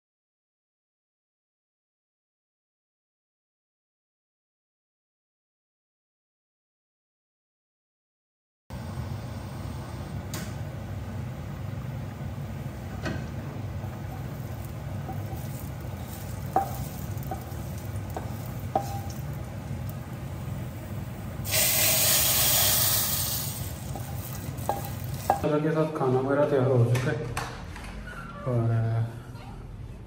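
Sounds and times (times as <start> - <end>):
steady low hum: 8.7 - 21.5
spoon stirring spices in oil: 13.8 - 20.9, 21.5 - 25.5
hot oil sizzling: 13.8 - 25.5
spoon knocking on pan: 15.0 - 19.4, 23.9 - 25.5.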